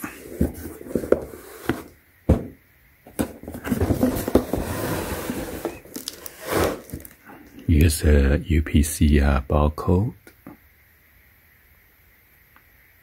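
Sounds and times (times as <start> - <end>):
cardboard rubbing and sliding: 0.0 - 2.5, 3.2 - 7.1
sharp knocks on cardboard box: 1.1 - 4.5.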